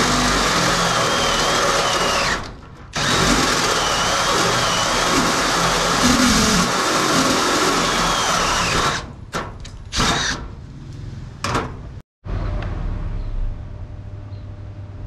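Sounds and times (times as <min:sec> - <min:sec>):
drill cutting through metal plate: 0:00.0 - 0:09.1, 0:09.9 - 0:10.4.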